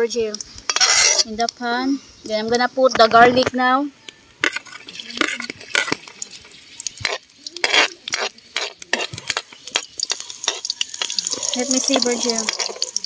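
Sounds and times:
metal ladle scraping a wok: 0:00.7 - 0:01.3, 0:04.4 - 0:13.0
oil sizzling: 0:04.2 - 0:13.0.

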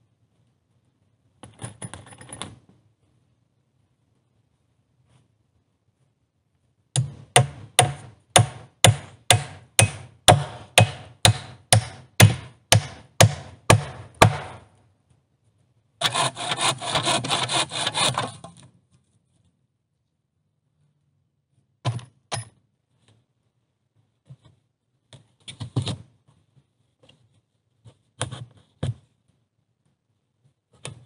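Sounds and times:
hatchet striking wood: 0:07.0 - 0:14.7
scraping rubbing sound: 0:16.0 - 0:18.4.

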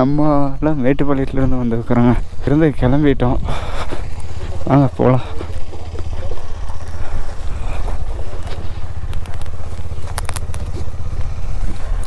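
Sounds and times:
motorcycle engine running: 0:00.0 - 0:12.0
sharp clicks: 0:09.0 - 0:10.9.

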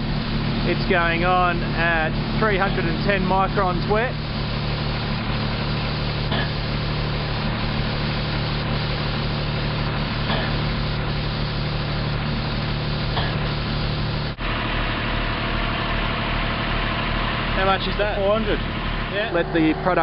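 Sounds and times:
paint spray gun hissing: 0:00.0 - 0:14.4
engine machine humming: 0:00.0 - 0:20.0.

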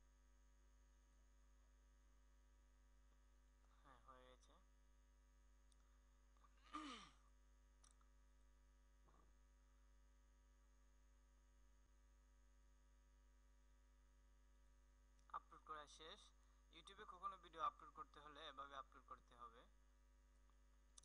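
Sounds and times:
faint electrical hum: 0:00.0 - 0:21.0
person sighing: 0:06.6 - 0:07.2.

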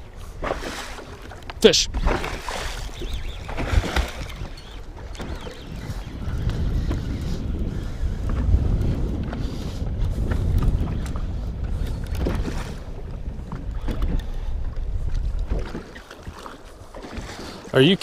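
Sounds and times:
wind rumbling on microphone: 0:00.0 - 0:18.0
water splashes: 0:00.3 - 0:06.0
fish thrashing against boat: 0:00.4 - 0:05.7.

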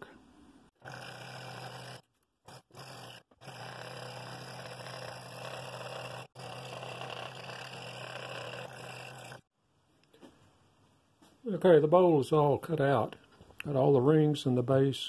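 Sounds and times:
scroll saw humming and buzzing: 0:00.8 - 0:09.5.

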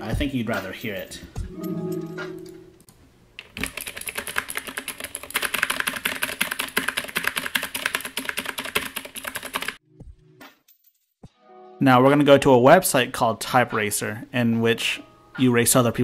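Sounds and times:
mechanical keyboard typing clicks: 0:03.4 - 0:09.8.

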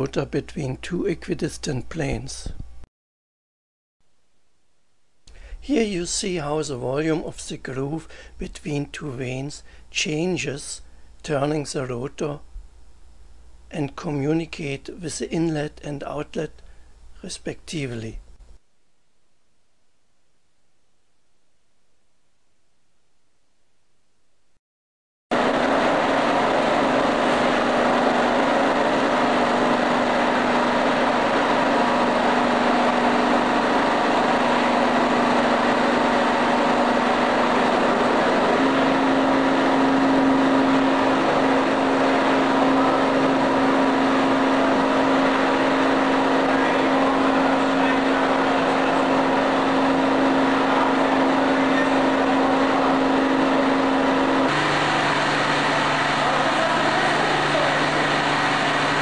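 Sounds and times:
compressor humming: 0:05.2 - 0:11.4, 0:25.3 - 0:59.0
loud rushing noise: 0:25.4 - 0:59.0.

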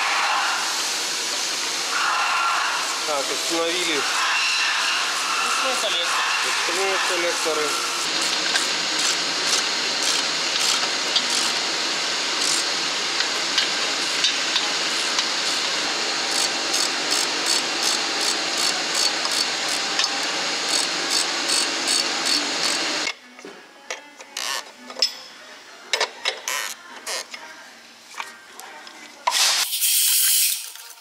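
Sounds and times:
steady workshop hiss: 0:00.0 - 0:23.1, 0:25.5 - 0:31.0
ratchet wrench clicking: 0:08.2 - 0:11.6, 0:12.4 - 0:12.6, 0:16.3 - 0:19.8, 0:20.7 - 0:22.8, 0:26.4 - 0:27.3.

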